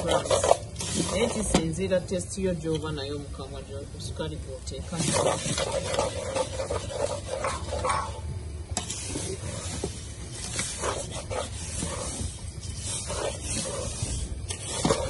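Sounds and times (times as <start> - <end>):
wooden spoon scraping pan: 0.0 - 1.8, 4.8 - 8.2, 8.8 - 15.0.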